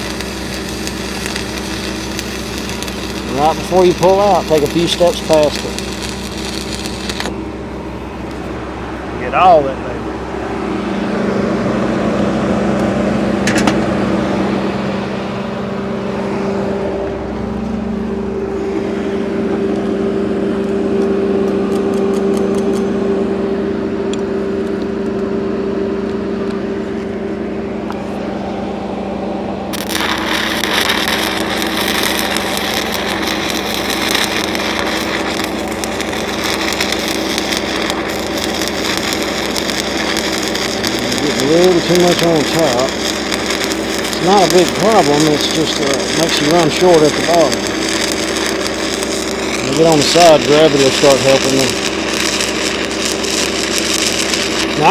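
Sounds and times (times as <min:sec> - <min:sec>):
welding arc crackling: 0:00.0 - 0:07.5, 0:20.6 - 0:23.2, 0:29.7 - 0:54.9
engine humming: 0:00.0 - 0:54.9.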